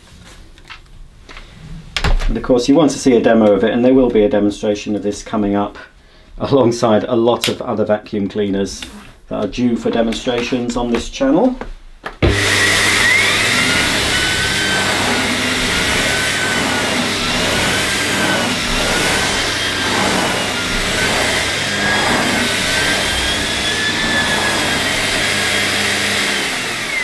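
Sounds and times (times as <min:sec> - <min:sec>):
vacuum cleaner on carpet: 0:12.2 - 0:27.0.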